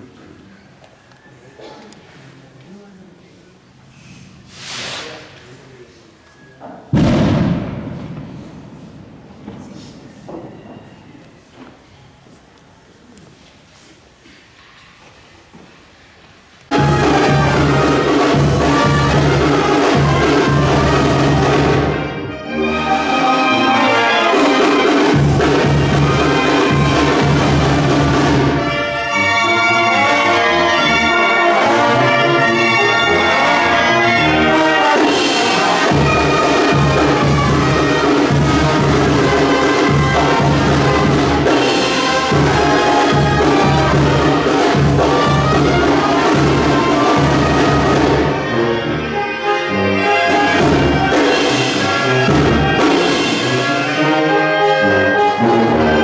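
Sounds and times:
brass band playing: 0:06.9 - 0:09.3, 0:16.7 - 0:56.0.

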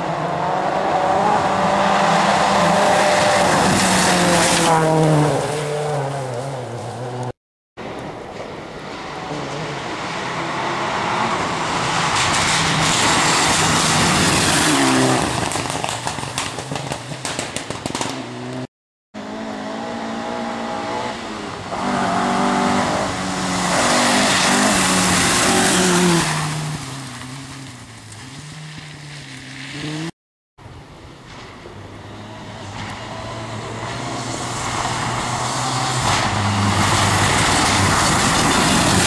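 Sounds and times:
rally car engines revving: 0:00.0 - 0:07.4, 0:09.0 - 0:16.0, 0:17.9 - 0:30.1, 0:31.9 - 0:39.0
sharp crackles: 0:15.1 - 0:18.2.

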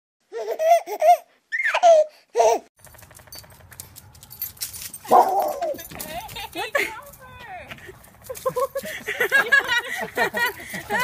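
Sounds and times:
baby laughing: 0:00.3 - 0:02.7.

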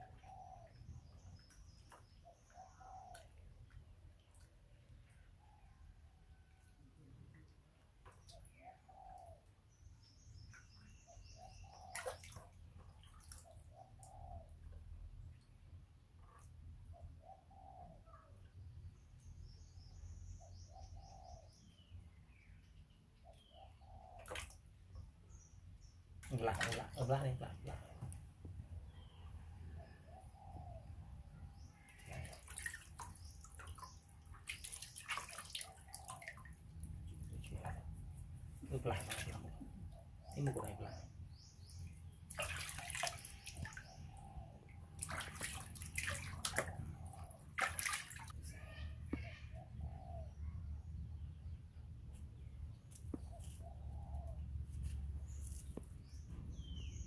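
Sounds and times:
water splashing in plastic basin: 0:11.9 - 0:13.5, 0:24.2 - 0:24.6, 0:26.2 - 0:27.1, 0:31.9 - 0:38.0, 0:38.6 - 0:39.7, 0:42.3 - 0:43.9, 0:44.9 - 0:48.5.

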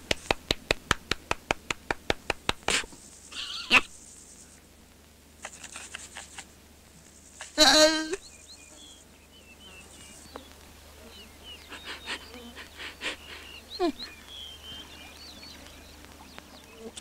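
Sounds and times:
clicks and rustles: 0:00.0 - 0:07.6, 0:14.0 - 0:17.0
faint chirping: 0:02.9 - 0:04.8, 0:05.4 - 0:17.0.

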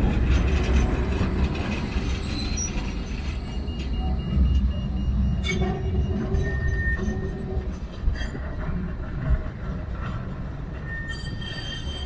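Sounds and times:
tram rumbling along track: 0:00.0 - 0:12.0
high wheel squeal: 0:01.7 - 0:04.4, 0:05.2 - 0:08.5, 0:10.8 - 0:12.0.

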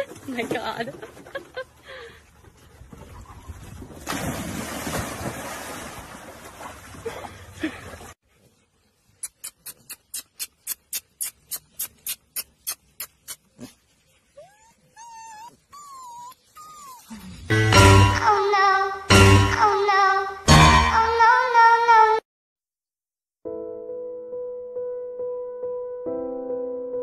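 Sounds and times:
dog splashing in water: 0:03.6 - 0:08.2
puppies whining: 0:14.3 - 0:17.5.

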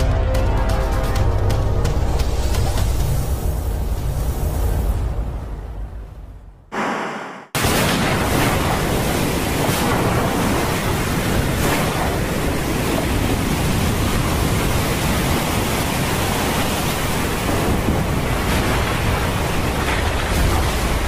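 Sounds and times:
heavy rain: 0:07.6 - 0:21.0
wind: 0:07.6 - 0:21.0.

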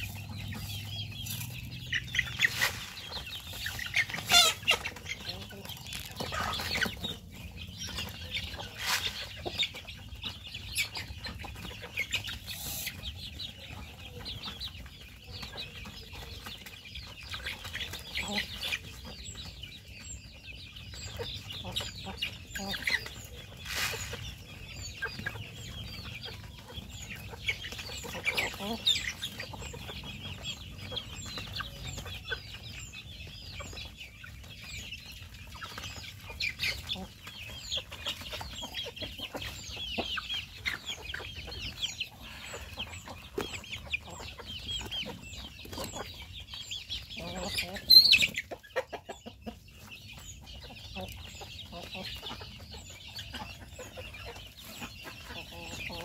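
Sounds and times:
chickens clucking: 0:00.0 - 0:56.0.

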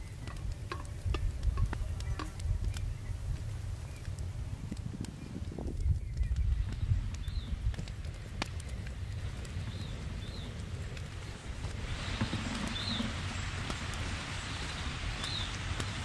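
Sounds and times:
wind rumbling on microphone: 0:00.0 - 0:16.0
bird chirping: 0:08.6 - 0:15.7.

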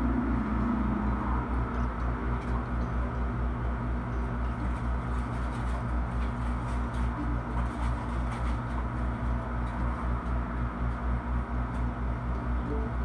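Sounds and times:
machine humming with low throb: 0:00.0 - 0:13.0.

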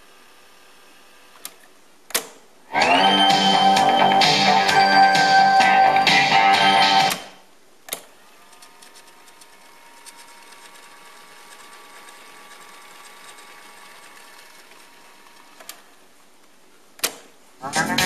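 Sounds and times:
cassette playback music: 0:02.7 - 0:07.4, 0:17.6 - 0:18.0
tape rewinding motor whir: 0:08.4 - 0:16.0.

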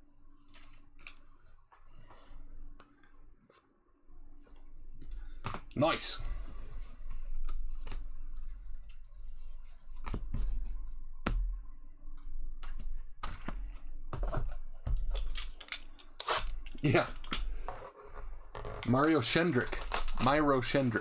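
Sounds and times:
foil wrappers crinkling and tearing: 0:18.8 - 0:21.0.

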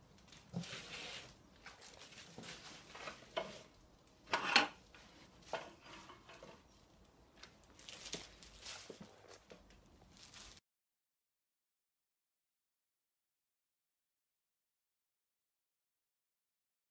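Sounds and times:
foam packing rustling: 0:00.2 - 0:03.8, 0:07.5 - 0:10.6.

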